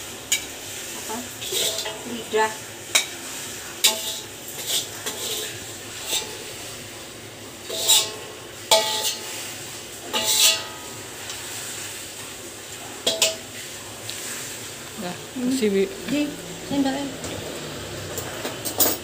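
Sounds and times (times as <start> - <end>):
metal spatula scraping wok: 0.3 - 6.7, 7.6 - 12.1.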